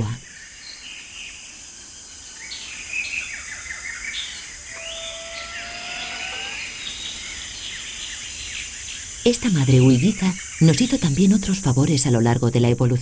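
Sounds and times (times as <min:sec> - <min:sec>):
forest birds chirping: 0:00.0 - 0:12.0
steady high hiss: 0:00.3 - 0:12.2
lemur long rising call: 0:04.2 - 0:09.1.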